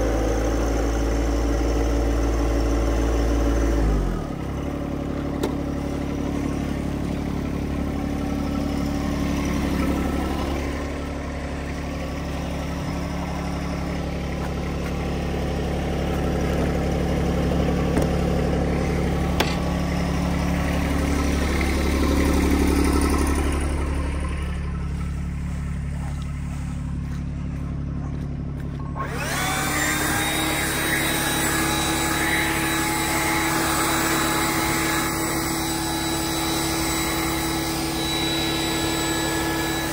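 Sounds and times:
tractor engine running: 0.0 - 39.9
high whining tone: 28.7 - 39.9.

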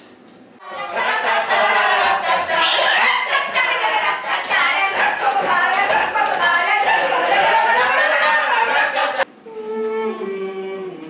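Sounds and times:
group singing loudly: 0.6 - 9.2
sharp claps: 2.0 - 9.2.

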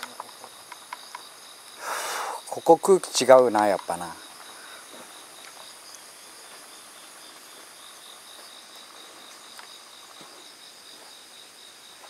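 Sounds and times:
crickets trilling: 0.0 - 12.0
soft ticks: 3.5 - 4.0.

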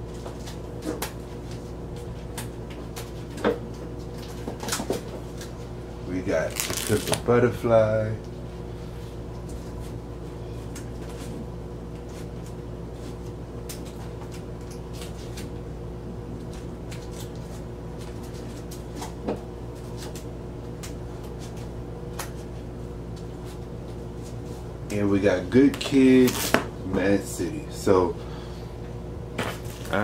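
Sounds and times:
low electrical hum: 0.0 - 30.0
record sleeves clicking and crinkling: 6.3 - 7.3, 25.6 - 26.6, 29.4 - 30.0.

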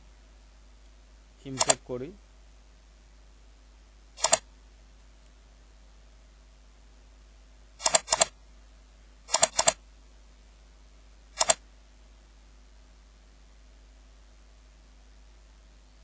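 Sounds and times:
faint steady hum: 0.0 - 16.0
computer mouse clicks: 1.6 - 1.8, 4.2 - 4.4, 7.8 - 8.3, 9.3 - 9.8, 11.4 - 11.6.

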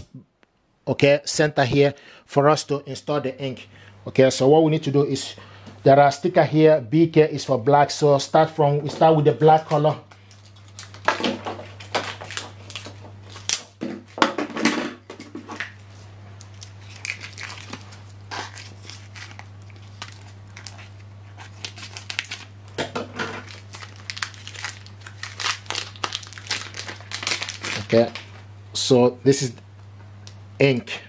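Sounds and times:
steady low hum: 0.0 - 31.0
plastic packaging crinkling and tearing: 9.6 - 13.8, 15.6 - 28.4.

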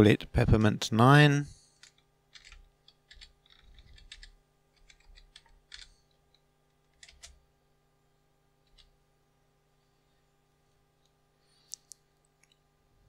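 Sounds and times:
faint keyboard typing: 1.8 - 7.4, 8.6 - 9.0.

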